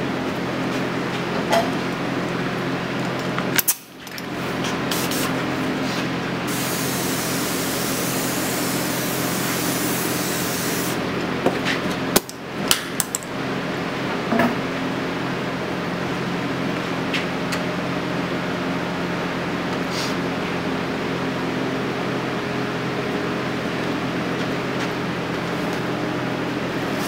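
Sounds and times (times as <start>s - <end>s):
steady hum: 0.0s - 14.0s
spray gun hissing: 4.9s - 5.3s, 6.5s - 11.0s.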